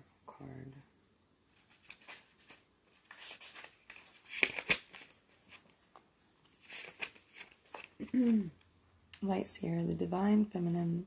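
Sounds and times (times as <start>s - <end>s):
cards and paper rustling: 1.5s - 8.5s.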